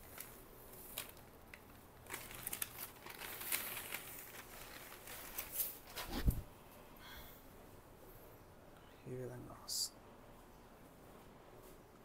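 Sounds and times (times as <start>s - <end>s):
fabric rustling and crinkling: 0.0s - 6.5s.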